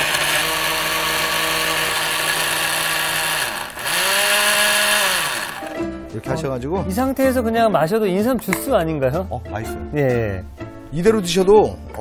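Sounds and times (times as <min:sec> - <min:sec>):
blender motor grinding: 0:00.0 - 0:05.8.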